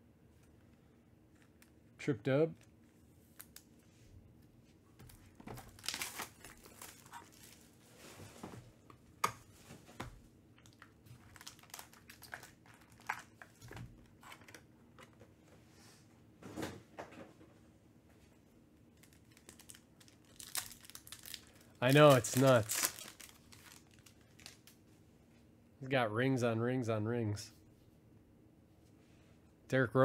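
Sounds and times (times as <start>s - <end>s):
foil wrapper crinkling and tearing: 5.1s - 7.8s, 10.6s - 13.6s, 19.0s - 24.8s.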